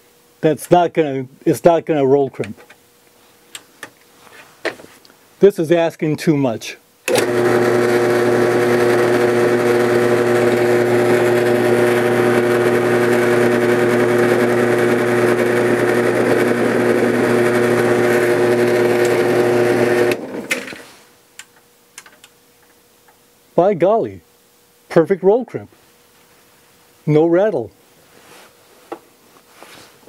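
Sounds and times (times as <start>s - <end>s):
drill press motor running: 7.1s - 20.8s.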